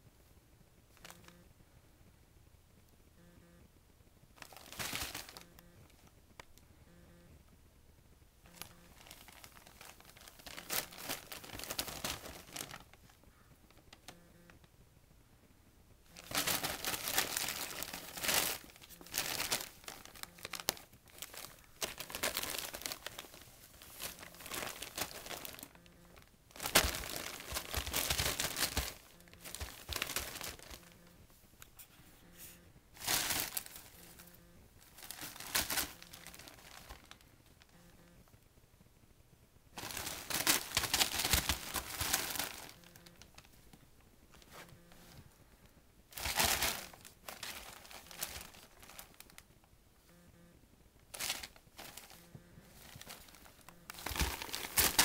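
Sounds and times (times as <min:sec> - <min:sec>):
wrapping paper crinkling: 0:04.4 - 0:05.6, 0:08.5 - 0:14.2, 0:16.2 - 0:31.2, 0:33.0 - 0:37.7, 0:39.8 - 0:43.7, 0:46.1 - 0:49.4, 0:51.1 - 0:55.0
paper rustling: 0:08.6 - 0:14.1, 0:16.2 - 0:31.0, 0:31.8 - 0:34.2, 0:34.8 - 0:37.2, 0:39.8 - 0:43.6, 0:46.2 - 0:49.4, 0:51.1 - 0:55.0.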